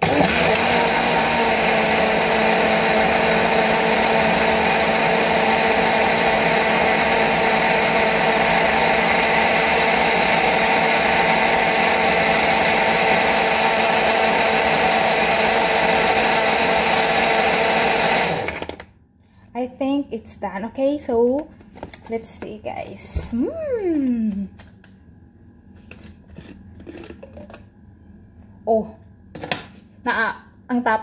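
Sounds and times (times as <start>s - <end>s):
blender motor whine: 0.0s - 18.9s.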